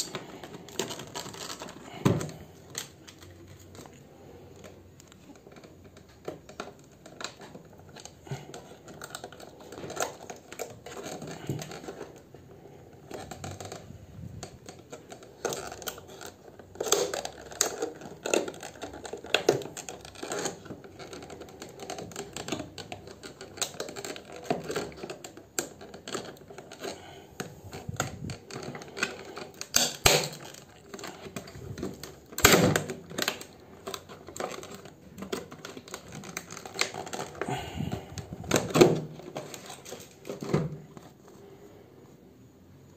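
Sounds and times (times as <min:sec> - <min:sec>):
plastic cracking: 0:00.0 - 0:41.8
scissors snipping plastic: 0:13.0 - 0:40.9.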